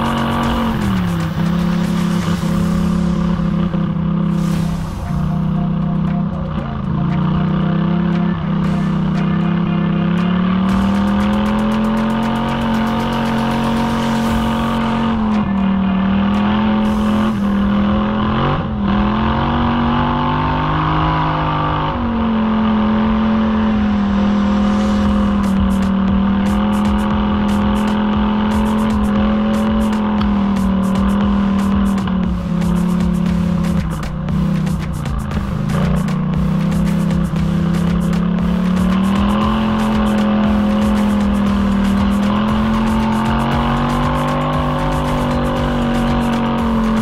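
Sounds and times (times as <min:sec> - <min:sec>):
atv engine running: 0:00.0 - 0:47.0
sharp ticks and clicks: 0:06.0 - 0:14.6, 0:25.4 - 0:47.0.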